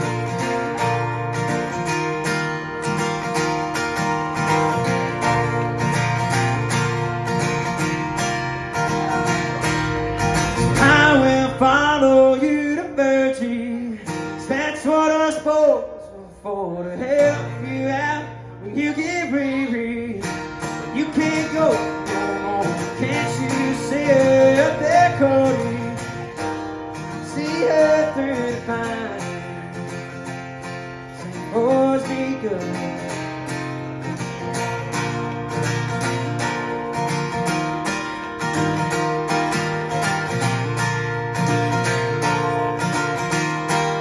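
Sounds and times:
acoustic guitar strumming: 0:00.0 - 0:44.0
man singing: 0:10.2 - 0:36.1.

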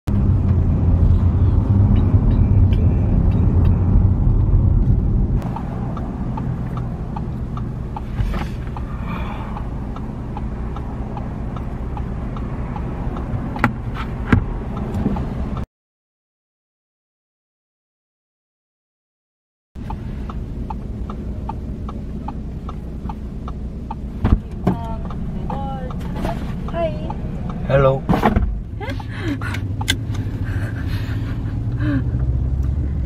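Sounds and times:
car engine and road rumble: 0:00.1 - 0:15.7, 0:19.8 - 0:33.0
light regular ticking: 0:05.4 - 0:13.9, 0:14.6 - 0:15.6, 0:19.8 - 0:32.8.

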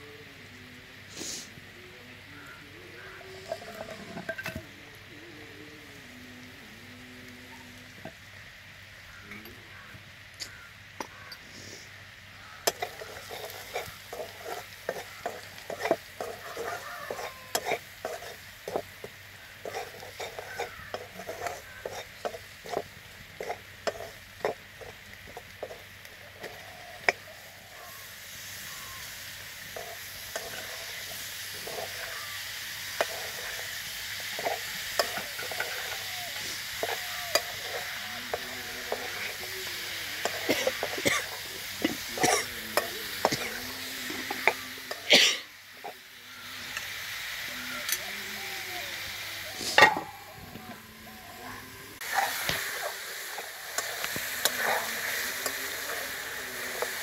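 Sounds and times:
oil sizzling: 0:00.0 - 0:57.0
metal spatula scraping steel pan: 0:12.7 - 0:18.8, 0:19.6 - 0:22.8, 0:29.8 - 0:32.2, 0:34.3 - 0:39.4.

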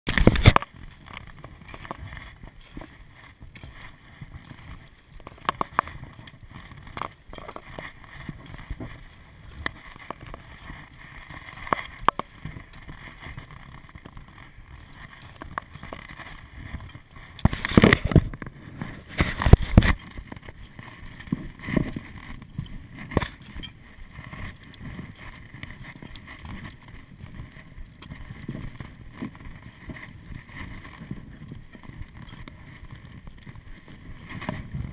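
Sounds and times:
footsteps crunching on scree: 0:00.1 - 0:34.9
gear and stones knocking: 0:00.1 - 0:34.9
rumbling noise on microphone: 0:00.1 - 0:34.9.

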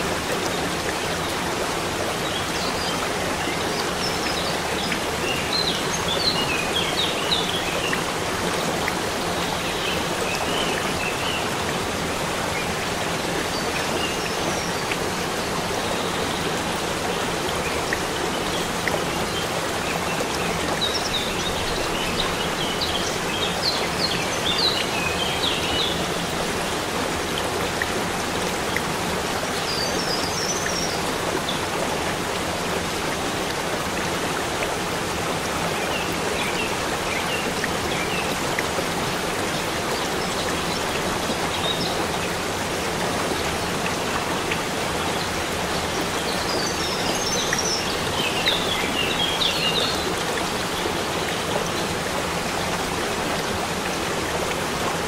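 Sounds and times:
waterfall rushing and splashing: 0:00.0 - 0:55.0.

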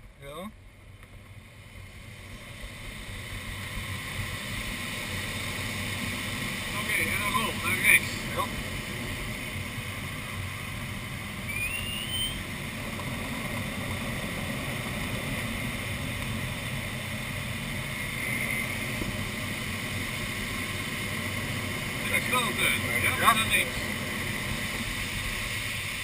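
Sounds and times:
short rising tone: 0:11.4 - 0:12.5
air rushing over glider canopy: 0:12.4 - 0:26.0.

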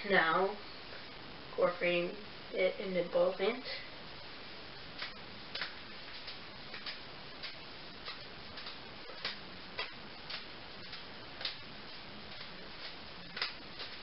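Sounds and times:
juggling balls landing in hands: 0:05.0 - 0:11.7.

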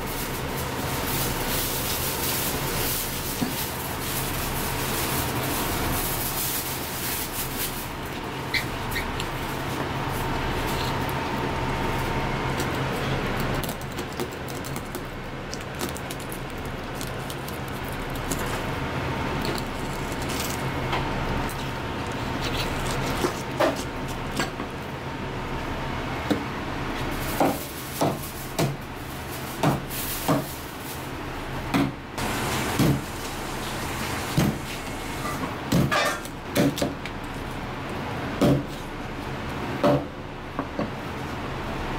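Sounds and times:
steady background hum: 0:00.0 - 0:41.9.

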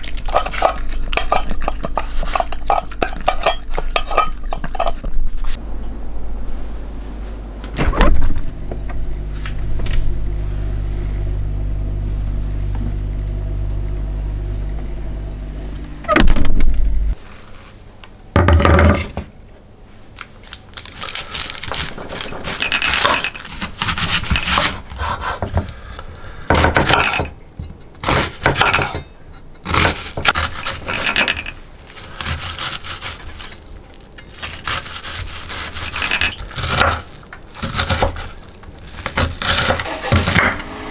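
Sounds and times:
low hum: 0:04.7 - 0:17.2, 0:21.1 - 0:26.5
refrigerator door thud: 0:07.7 - 0:08.5, 0:16.1 - 0:16.8.

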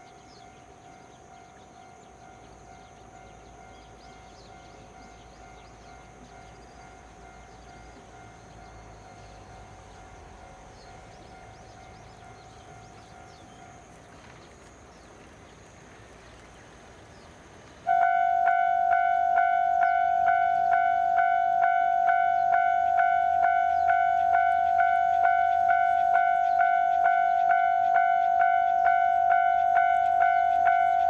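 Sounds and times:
faint background hiss: 0:00.0 - 0:21.6
level crossing bell ringing: 0:17.9 - 0:31.0.

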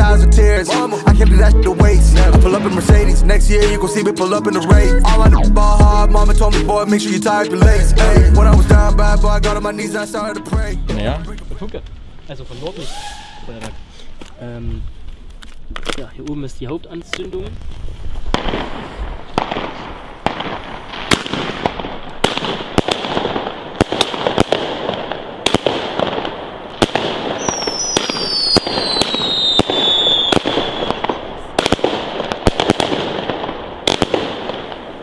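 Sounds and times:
firework hiss: 0:12.4 - 0:14.2, 0:17.8 - 0:35.0
falling whistling tone: 0:12.7 - 0:13.8, 0:27.4 - 0:31.0
firework shots: 0:18.2 - 0:35.0.

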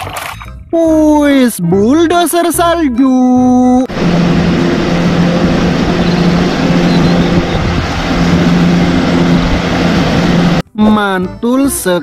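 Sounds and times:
diesel engine humming: 0:03.4 - 0:10.7.

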